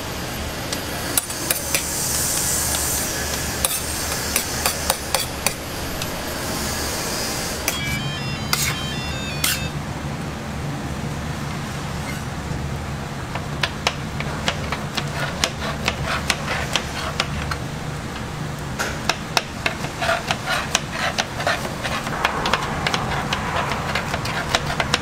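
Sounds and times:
steady low hum: 21.2s - 25.0s.

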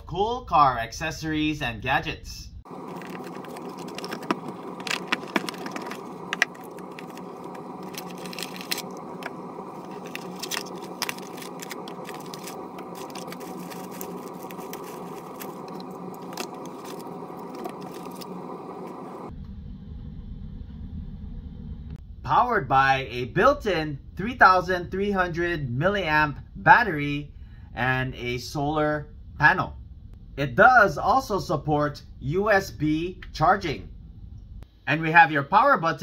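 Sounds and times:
steady background hum: 0.0s - 36.0s
cardboard and accessories handling: 2.7s - 19.3s.

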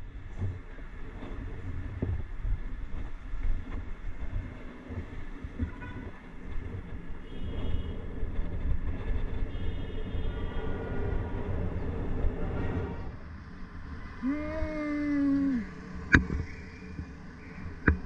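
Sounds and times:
wind buffeting microphone: 0.0s - 13.1s
bicycle road rumble: 0.0s - 18.0s.

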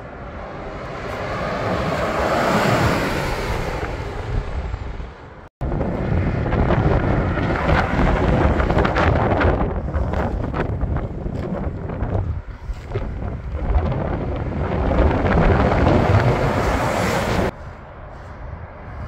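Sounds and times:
approaching buses: 0.0s - 9.9s
bus passing on highway: 0.0s - 19.0s
wind buffeting microphone: 0.0s - 19.0s.

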